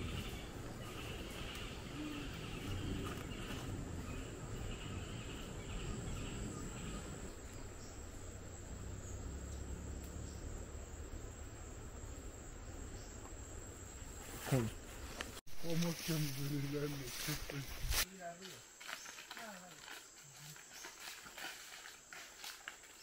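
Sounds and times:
lower pulsing chirp: 0.0 - 14.2
insects trilling: 0.0 - 23.0.

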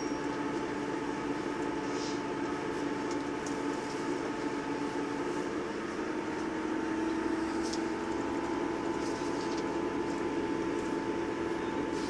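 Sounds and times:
train diesel engine drone: 0.0 - 12.0.

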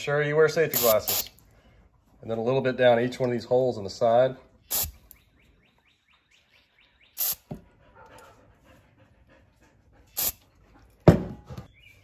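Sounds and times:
aerosol spray hissing: 0.8 - 1.3, 7.2 - 7.4, 10.2 - 10.4.

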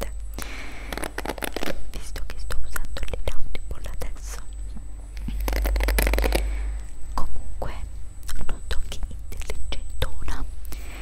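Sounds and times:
hairbrush bristles scratching: 0.8 - 1.8, 5.2 - 6.5.

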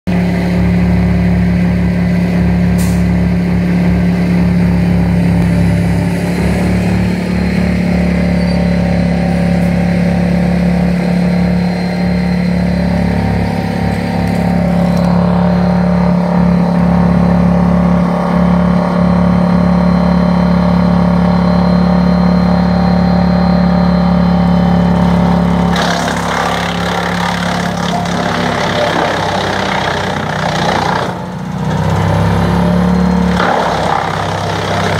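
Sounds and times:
tractor engine droning: 0.1 - 34.9
wood chipper chipping branches: 24.7 - 34.9.

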